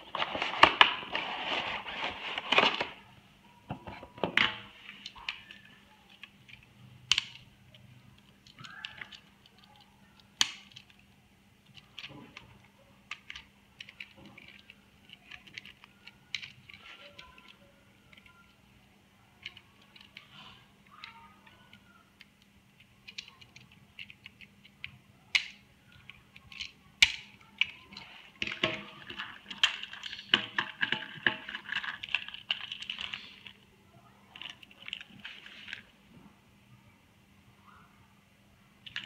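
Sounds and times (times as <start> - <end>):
plastic toy clicking and rattling: 5.0 - 18.7, 19.3 - 33.7, 34.3 - 35.9, 38.8 - 39.0.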